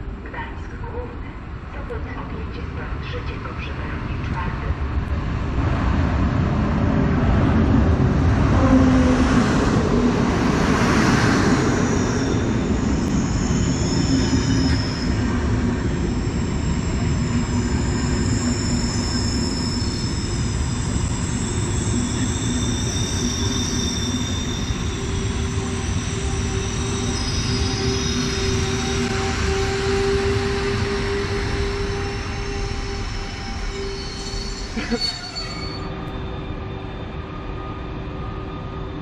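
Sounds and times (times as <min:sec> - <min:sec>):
train wheels rumbling: 0:01.8 - 0:36.7
wheels squealing on rails: 0:08.4 - 0:39.0.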